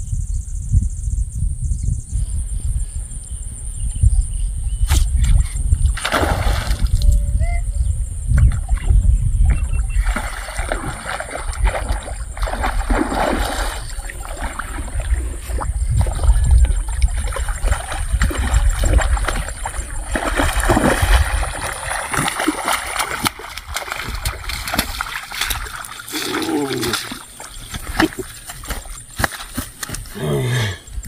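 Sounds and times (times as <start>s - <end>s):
fish splashing and thrashing: 5.9s - 7.0s, 9.5s - 30.2s
water sloshing from wading: 9.5s - 30.2s.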